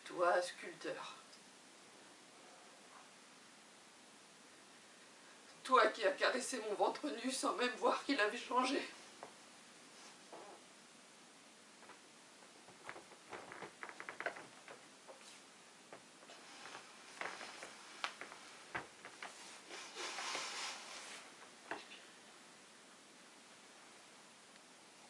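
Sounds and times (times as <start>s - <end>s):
clothing rustle: 8.5s - 10.6s, 11.7s - 22.3s.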